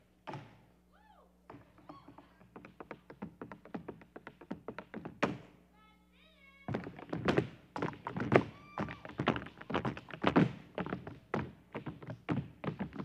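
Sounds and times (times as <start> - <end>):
tap shoes clicking on stage floor: 1.5 - 5.5, 6.7 - 13.0.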